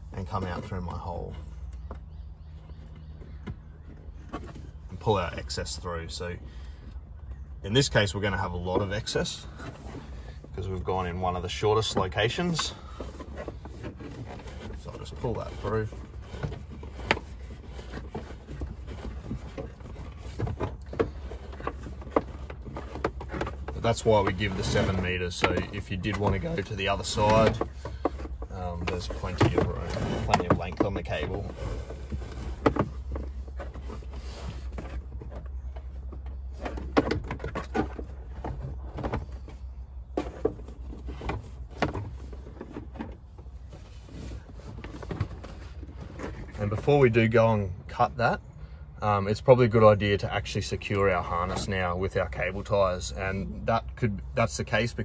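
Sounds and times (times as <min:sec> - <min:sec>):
cable rubbing against plastic: 0:11.1 - 0:47.1.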